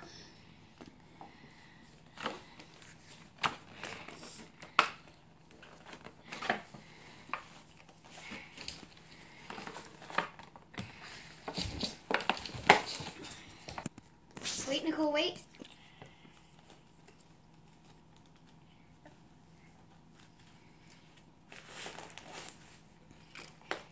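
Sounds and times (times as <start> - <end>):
packaging crinkling and snapping: 2.0 - 14.1, 21.4 - 23.9.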